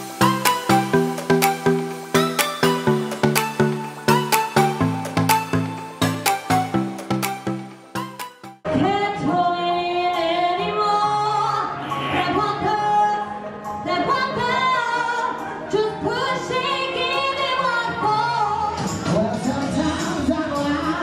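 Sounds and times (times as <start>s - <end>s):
backing track: 0.0s - 9.0s
woman singing into microphone: 8.7s - 21.0s.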